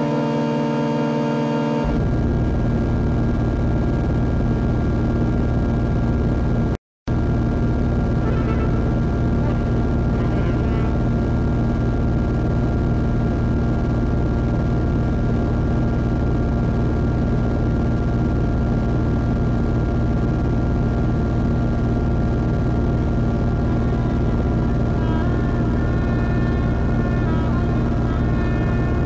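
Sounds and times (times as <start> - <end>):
held synth tones: 0.0 - 2.2, 8.2 - 11.6, 23.2 - 29.0
low synth drone hum: 0.0 - 29.0.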